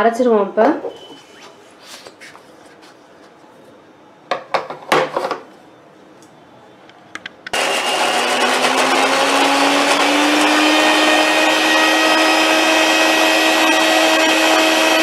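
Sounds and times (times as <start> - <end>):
mixer grinder motor running: 7.6 - 15.0.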